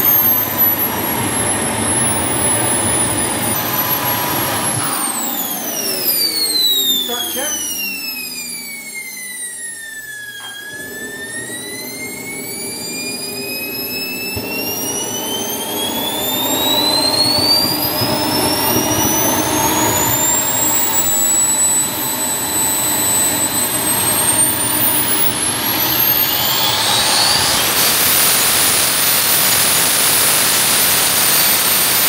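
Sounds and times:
jet turbine whining: 0:00.0 - 0:32.0.

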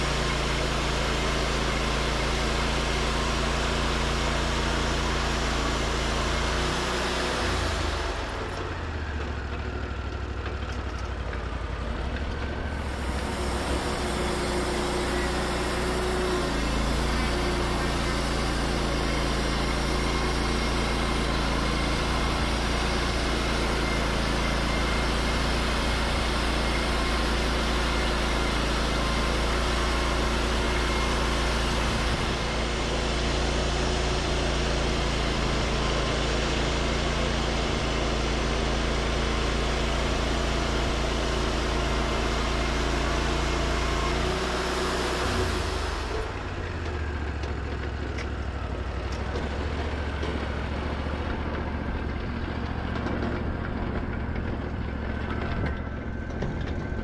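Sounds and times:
band saw cutting log: 0:00.0 - 0:08.8, 0:12.3 - 0:47.5
engine running: 0:00.0 - 0:57.0.

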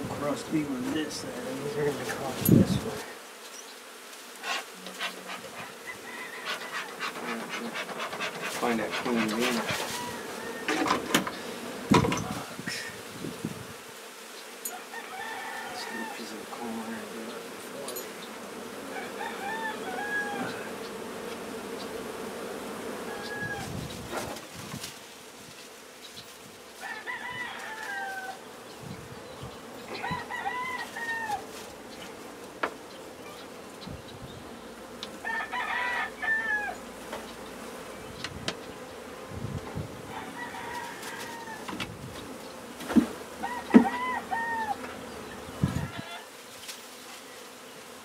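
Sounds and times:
bees buzzing: 0:00.0 - 0:48.0
rooster crowing: 0:05.5 - 0:08.0, 0:08.6 - 0:11.1, 0:14.7 - 0:16.4, 0:18.9 - 0:20.7, 0:23.0 - 0:23.7, 0:26.8 - 0:28.4, 0:29.9 - 0:31.6, 0:35.2 - 0:36.9, 0:40.0 - 0:41.8, 0:43.4 - 0:44.9, 0:45.7 - 0:46.3
light knocks on hive: 0:10.7 - 0:12.3, 0:42.8 - 0:44.0.

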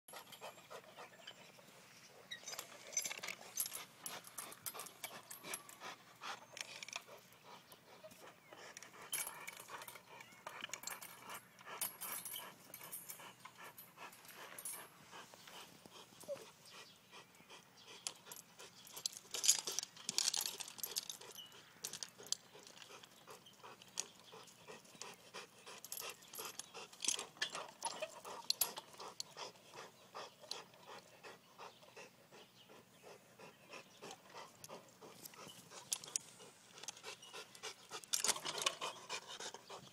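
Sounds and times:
dog panting: 0:00.1 - 0:02.3, 0:03.0 - 0:39.9
metal chains rattling: 0:02.2 - 0:07.2, 0:08.1 - 0:14.9, 0:18.0 - 0:29.8, 0:34.6 - 0:39.4.

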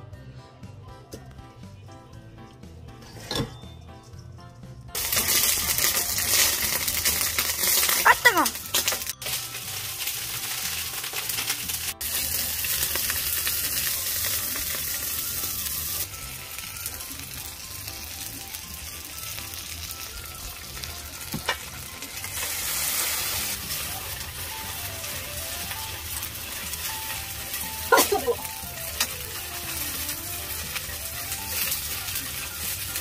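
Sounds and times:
crayfish sizzling in oil: 0:05.0 - 0:33.0.

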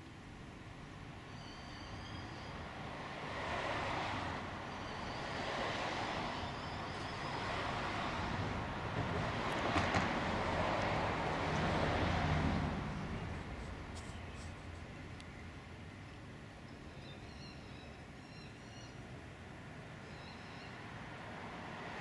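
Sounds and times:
car passing: 0:01.7 - 0:14.7, 0:19.8 - 0:22.0.

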